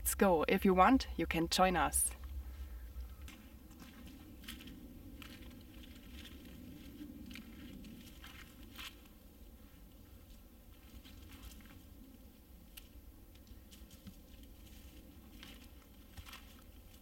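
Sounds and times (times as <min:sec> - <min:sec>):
rustling on forest floor: 0:02.1 - 0:17.0
twigs cracking underfoot: 0:02.2 - 0:17.0.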